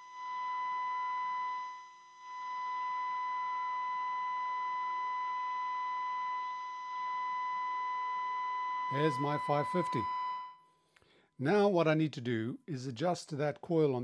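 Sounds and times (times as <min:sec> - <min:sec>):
faint wavering whistles: 0:00.0 - 0:10.7
radio test tone: 0:08.8 - 0:10.5.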